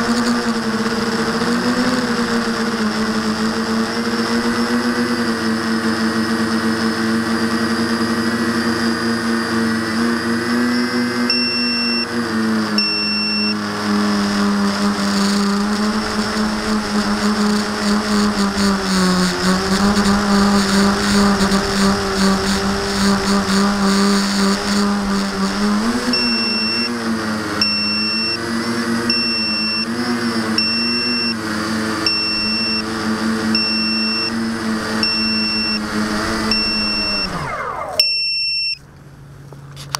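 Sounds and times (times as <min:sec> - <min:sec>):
drone motors whining: 0:00.0 - 0:39.9
short high electronic beep: 0:11.3 - 0:12.1, 0:12.8 - 0:13.6, 0:26.1 - 0:26.9, 0:27.6 - 0:28.4, 0:29.1 - 0:29.9, 0:32.1 - 0:32.9, 0:33.6 - 0:34.4, 0:35.0 - 0:38.8.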